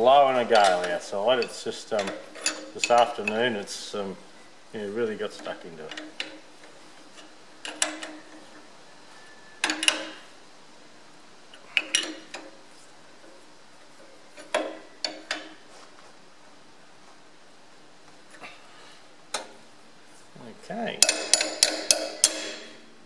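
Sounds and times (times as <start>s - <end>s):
metal-on-metal taps: 21.0s - 22.7s.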